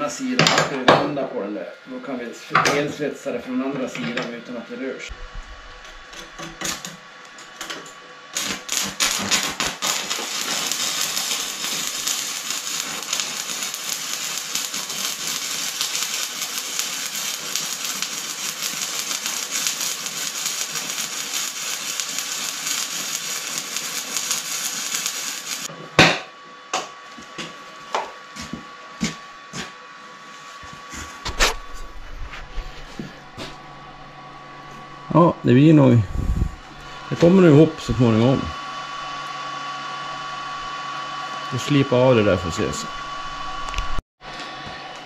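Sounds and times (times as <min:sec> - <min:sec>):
welding arc crackling: 0:05.1 - 0:25.7, 0:33.4 - 0:44.0
arc sputtering: 0:08.3 - 0:25.7
loud sharp knock: 0:26.0 - 0:26.9.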